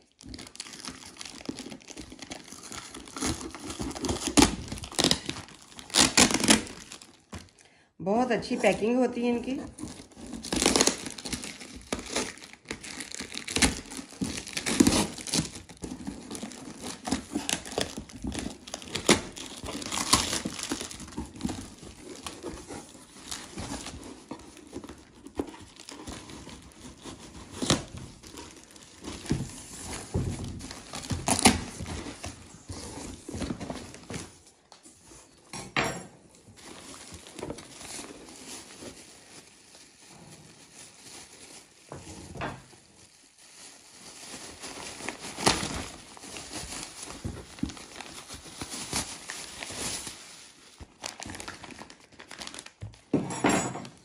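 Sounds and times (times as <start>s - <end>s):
packing tape tearing: 0.0s - 7.4s, 9.7s - 34.4s, 43.7s - 52.8s
plastic bags crinkling: 0.0s - 7.6s, 8.4s - 34.8s, 36.3s - 53.1s.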